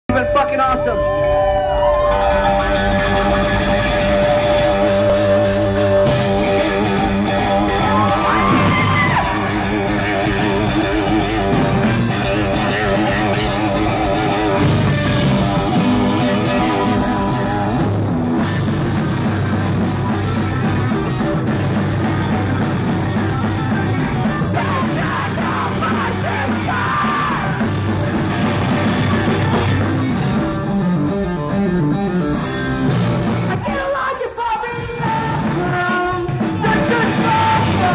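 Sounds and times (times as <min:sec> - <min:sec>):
live rock band playing: 0:00.1 - 0:37.9.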